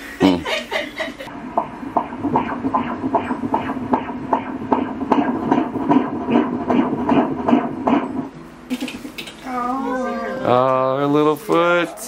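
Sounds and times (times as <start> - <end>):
fast doppler heartbeat pulse: 1.3 - 8.3.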